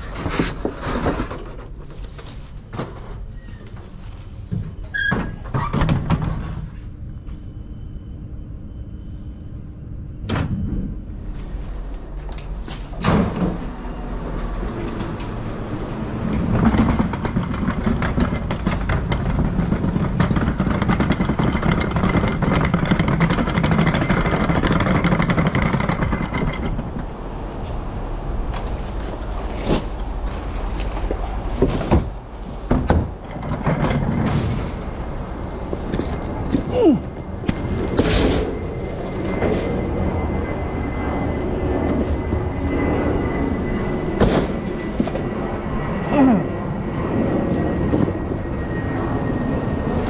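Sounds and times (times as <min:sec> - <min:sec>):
sliding door: 0:10.3 - 0:30.6, 0:31.2 - 0:36.5, 0:37.6 - 0:40.1.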